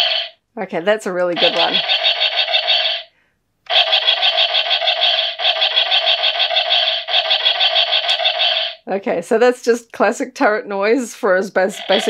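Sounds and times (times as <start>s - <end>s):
toy cannon sound effect pulsing: 0.0s - 0.4s, 1.4s - 3.1s, 3.7s - 8.8s, 11.7s - 12.0s.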